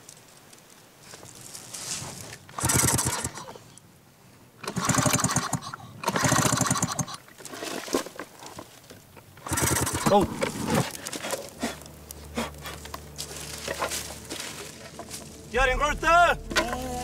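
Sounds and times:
outboard motor pull-start: 0:02.6 - 0:03.4, 0:04.6 - 0:08.0, 0:09.4 - 0:10.2.

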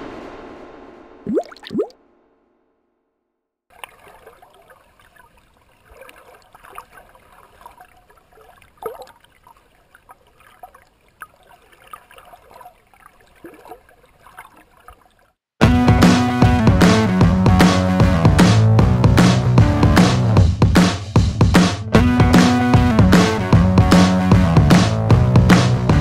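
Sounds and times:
water drips and plops: 0:01.3 - 0:01.9, 0:03.7 - 0:15.4
water trickling and bubbling: 0:01.3 - 0:01.9, 0:03.7 - 0:15.4.

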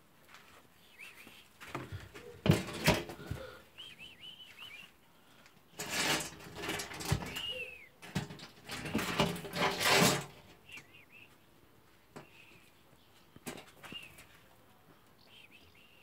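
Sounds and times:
rustling: 0:04.3 - 0:11.0.

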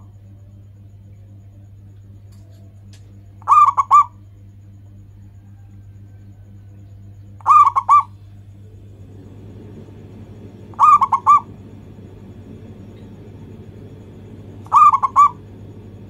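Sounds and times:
steady low hum: 0:00.0 - 0:16.0
dove cooing: 0:03.3 - 0:04.3, 0:05.3 - 0:16.0.

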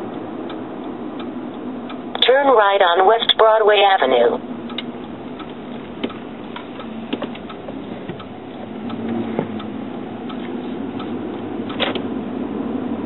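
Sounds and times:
car interior engine and road noise: 0:00.0 - 0:13.0.

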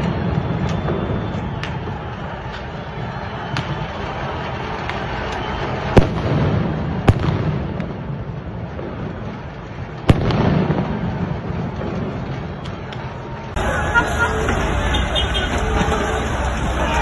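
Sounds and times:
low rumble of street noise: 0:00.0 - 0:17.0
loud explosive bangs: 0:05.5 - 0:09.4, 0:10.0 - 0:12.6.

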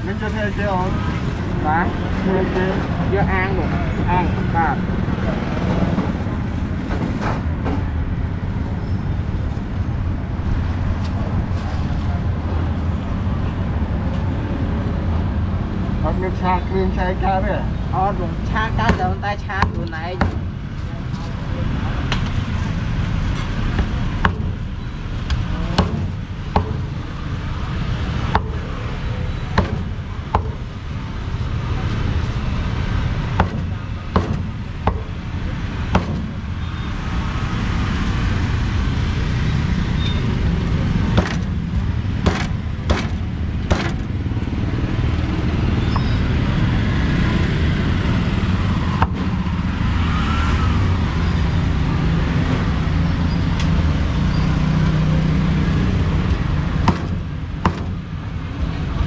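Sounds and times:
low rumble of traffic: 0:00.0 - 0:59.0
meat cleaver chopping on wood: 0:56.9 - 0:58.0.

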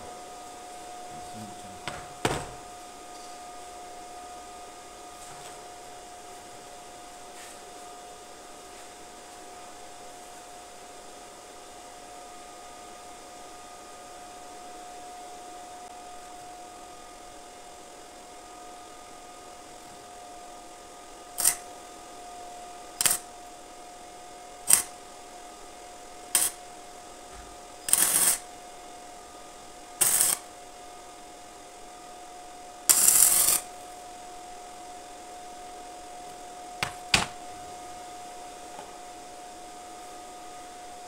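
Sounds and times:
faint hum: 0:00.0 - 0:41.0
arc welding crackle: 0:21.4 - 0:21.6, 0:22.9 - 0:23.4, 0:24.6 - 0:25.0, 0:26.2 - 0:26.6, 0:27.9 - 0:28.4, 0:30.0 - 0:30.5, 0:32.9 - 0:33.8.

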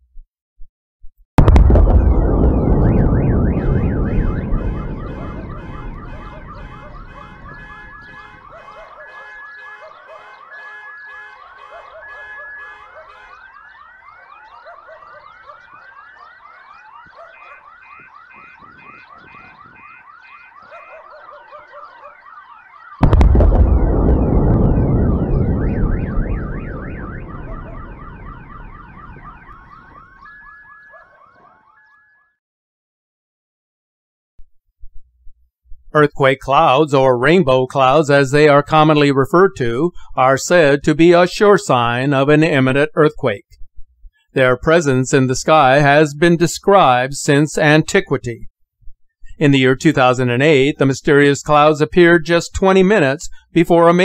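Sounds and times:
deep rumbling boom: 0:01.4 - 0:08.3, 0:23.0 - 0:30.1
car alarms wailing and beeping: 0:01.8 - 0:32.4.

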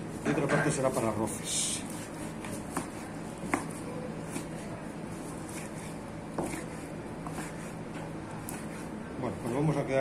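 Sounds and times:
steady low hum: 0:00.0 - 0:10.0
knife cutting raw meat: 0:01.6 - 0:09.6.

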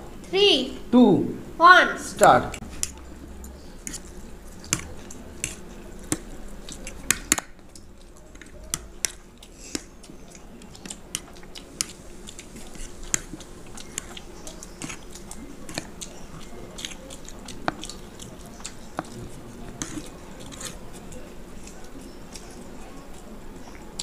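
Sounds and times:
chewing and slurping noodles: 0:07.7 - 0:24.0.

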